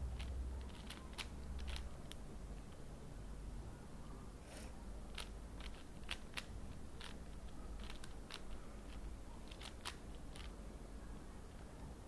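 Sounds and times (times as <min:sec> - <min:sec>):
puzzle cube clicking as twisted: 0:00.2 - 0:02.2, 0:05.1 - 0:10.5.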